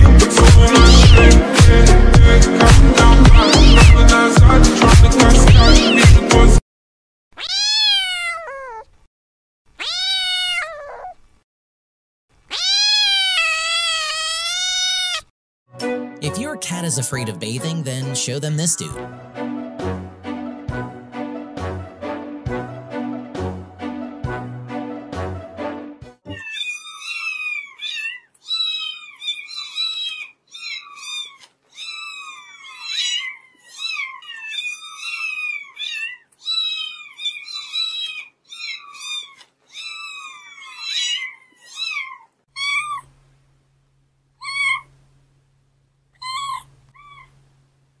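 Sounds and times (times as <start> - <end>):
kitten mewing: 0.7 - 1.3, 3.3 - 4.0, 7.4 - 8.8, 9.8 - 11.2, 12.5 - 15.3, 26.3 - 43.1, 44.4 - 44.9, 46.2 - 47.4.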